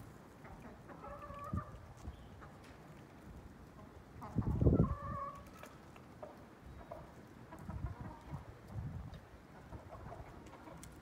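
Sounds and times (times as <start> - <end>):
chickens clucking: 0.3 - 11.0.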